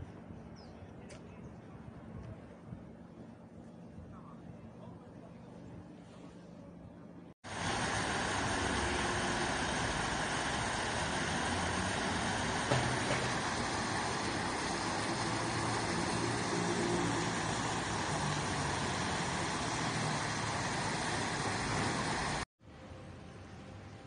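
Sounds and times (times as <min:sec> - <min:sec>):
fountain water splashing: 0:07.4 - 0:22.5
background hiss: 0:07.5 - 0:24.0.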